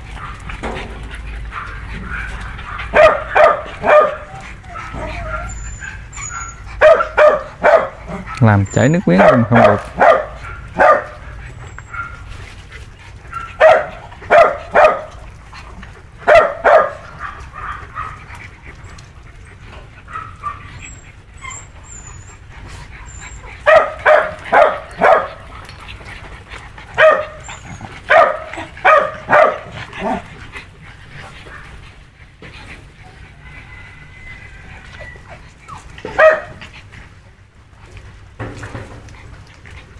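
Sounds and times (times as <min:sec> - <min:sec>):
dog barking: 0:01.5 - 0:05.4, 0:06.8 - 0:08.4, 0:09.1 - 0:11.2, 0:13.3 - 0:15.1, 0:16.2 - 0:18.2, 0:20.1 - 0:20.6, 0:23.6 - 0:25.4, 0:27.0 - 0:27.4, 0:28.1 - 0:30.2, 0:36.1 - 0:36.6
dog whining: 0:01.6 - 0:09.8, 0:20.1 - 0:25.0, 0:27.0 - 0:29.0, 0:33.0 - 0:36.4.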